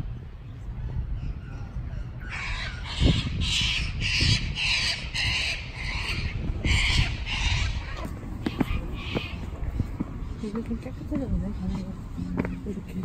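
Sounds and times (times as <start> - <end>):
parrots screeching: 2.2 - 9.5.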